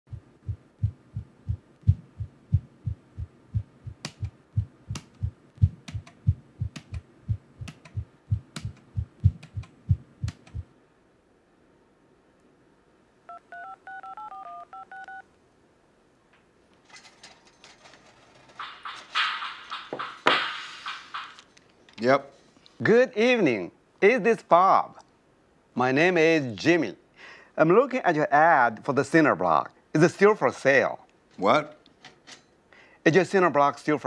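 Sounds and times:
low thumping beat: 0.0 - 10.7
phone keypad beeping tones: 13.3 - 15.2.

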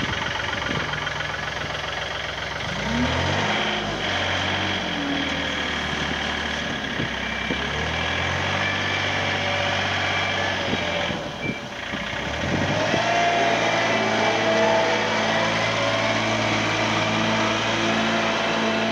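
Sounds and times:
wheel loader diesel engine: 0.0 - 18.9.

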